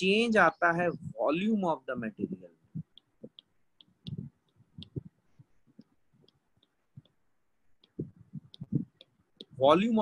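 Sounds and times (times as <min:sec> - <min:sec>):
stylus tapping on tablet screen: 0:02.7 - 0:09.7.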